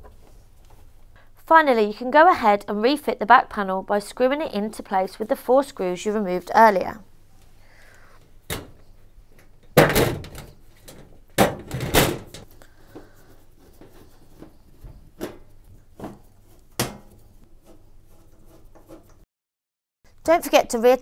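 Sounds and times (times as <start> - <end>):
sheet-metal panel clattering: 9.8 - 12.5.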